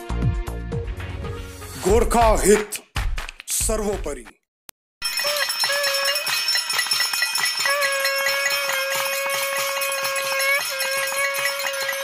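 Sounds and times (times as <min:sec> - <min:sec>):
conch shell blown: 0:05.1 - 0:06.4, 0:07.6 - 0:12.0.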